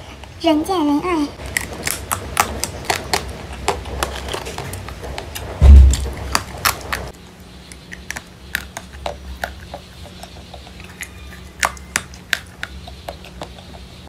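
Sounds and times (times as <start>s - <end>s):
candy clicking and crackling: 1.4s - 14.0s
heavy low thump: 5.5s - 6.2s.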